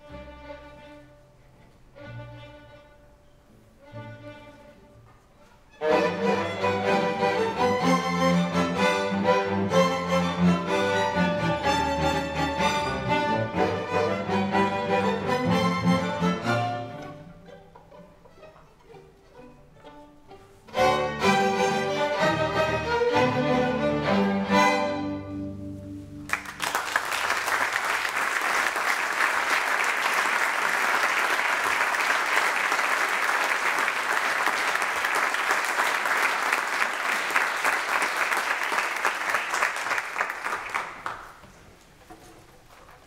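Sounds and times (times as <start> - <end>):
string ensemble chord: 5.8 - 17.6, 18.8 - 26.3
audience applause: 26.3 - 41.4.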